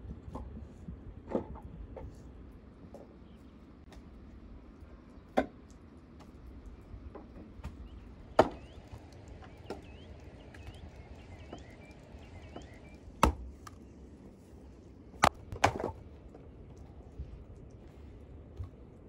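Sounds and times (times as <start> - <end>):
axe chopping firewood: 13.2 - 13.5, 15.2 - 16.0.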